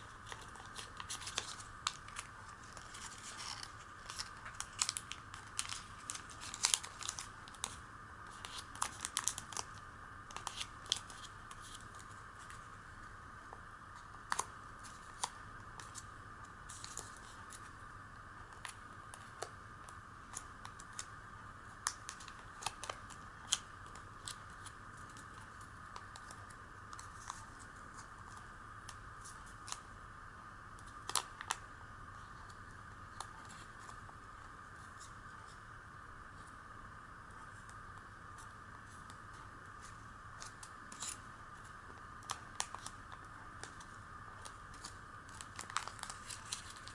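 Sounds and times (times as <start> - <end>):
paper crinkling and crackling: 0.0 - 12.7, 16.7 - 17.8, 21.8 - 29.9, 38.4 - 46.9.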